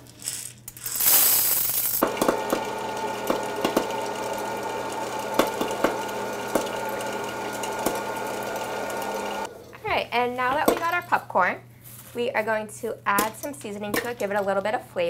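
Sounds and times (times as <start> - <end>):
kernels rattling into popper: 0.0 - 8.2
popcorn kernels popping: 0.0 - 9.2
popper fan motor whirring: 1.9 - 10.8.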